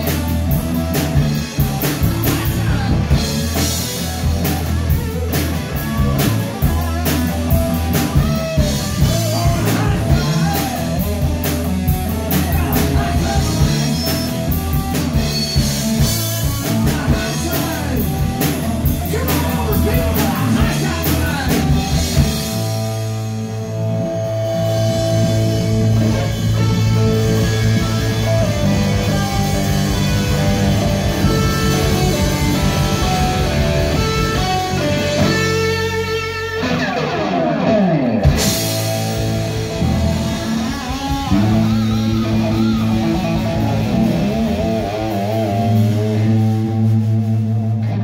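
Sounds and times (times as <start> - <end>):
electric guitar lead: 0.0 - 48.0
low bass line: 0.0 - 48.0.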